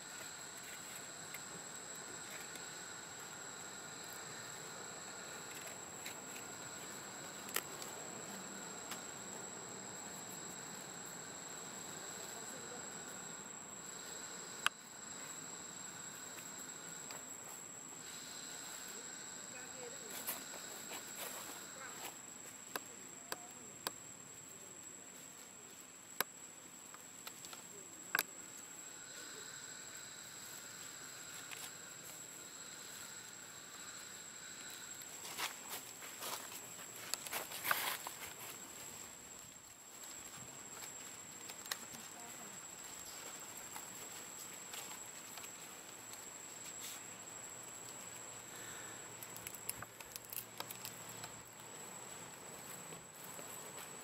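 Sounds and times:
insects trilling: 0:00.0 - 0:54.0
lower insect tone: 0:00.0 - 0:54.0
faint ticks: 0:14.0 - 0:15.3, 0:47.8 - 0:53.9.

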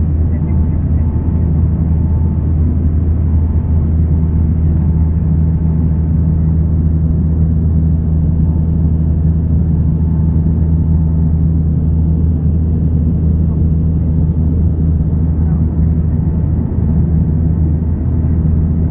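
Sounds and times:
turboprop engines droning: 0:00.0 - 0:18.9.

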